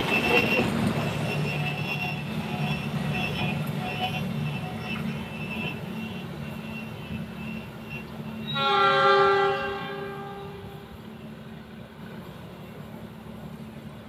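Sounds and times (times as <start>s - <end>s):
locomotive horn blast: 0.0s - 11.0s
train rumbling: 0.0s - 14.0s.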